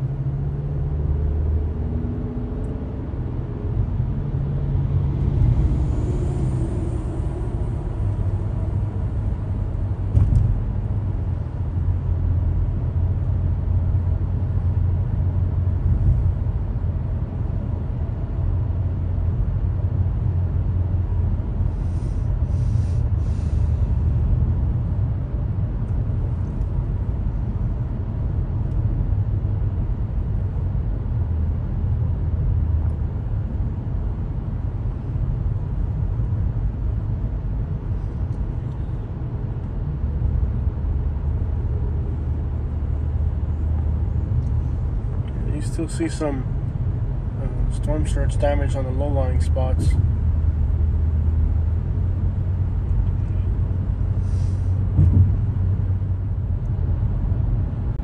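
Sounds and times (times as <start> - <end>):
car engine and road noise: 0.0 - 58.0
short knock: 55.0 - 55.4.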